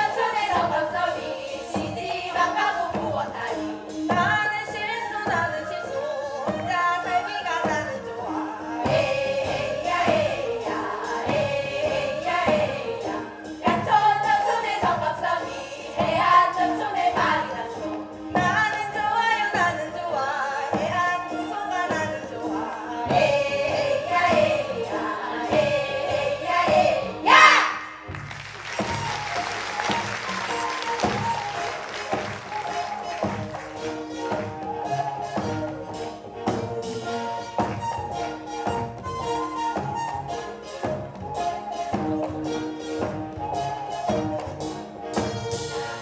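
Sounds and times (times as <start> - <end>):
woman singing folk song: 0.0 - 9.0, 12.8 - 27.6
group of singers: 0.0 - 28.1, 28.8 - 46.0
accompanying instruments: 7.7 - 46.0
people clapping: 28.1 - 34.4.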